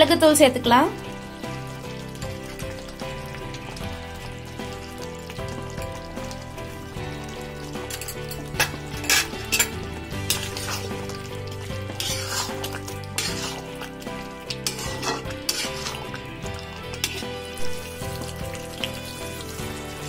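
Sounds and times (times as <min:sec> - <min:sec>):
gravy sizzling: 0:00.0 - 0:20.0
metal spoon scraping a pan: 0:07.8 - 0:19.6.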